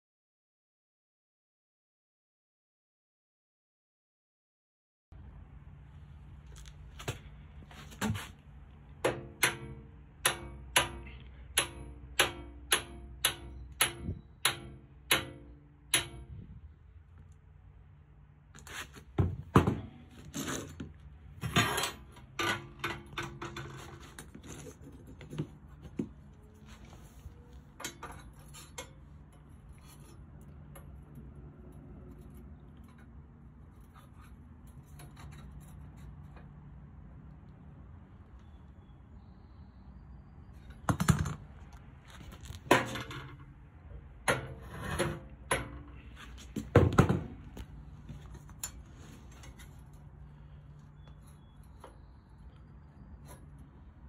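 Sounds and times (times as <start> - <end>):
metal tools tapping steel: 9.1 - 16.4, 27.8 - 31.9
metal clanks and clicks: 21.5 - 24.4, 27.8 - 29.5.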